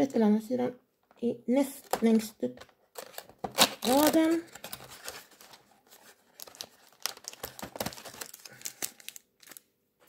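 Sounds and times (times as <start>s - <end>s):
plastic wrapper crinkling: 2.9s - 9.7s.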